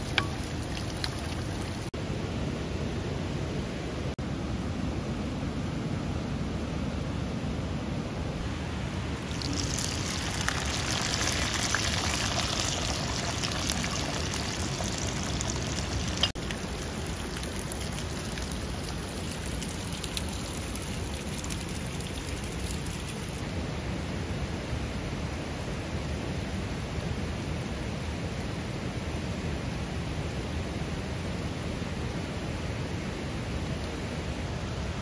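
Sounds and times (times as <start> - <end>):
okra sizzling in hot oil: 0.0 - 1.9, 9.2 - 23.4
water running down rock: 0.0 - 1.9, 9.2 - 23.4.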